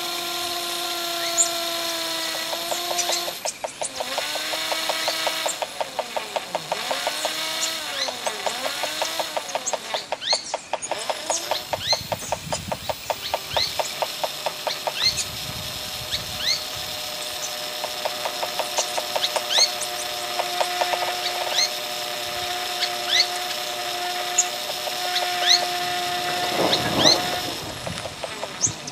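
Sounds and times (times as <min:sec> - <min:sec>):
held steady tones: 0:00.0 - 0:28.9
rapid electronic clicks: 0:02.5 - 0:15.3
rising squeaky chirps: 0:22.7 - 0:28.9.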